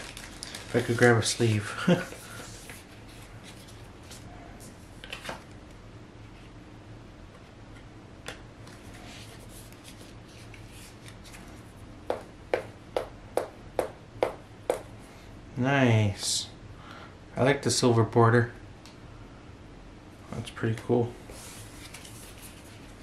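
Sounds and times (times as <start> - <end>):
plastic sleeve rustling: 0.0 - 4.3.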